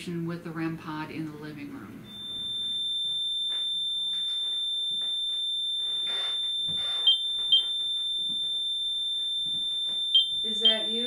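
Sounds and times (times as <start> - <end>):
sensor alarm high-pitched tone: 2.0 - 11.0.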